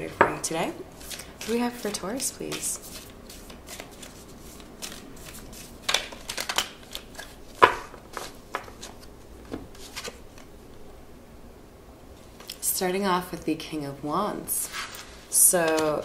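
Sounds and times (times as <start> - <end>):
cards shuffling and snapping: 1.0 - 10.5.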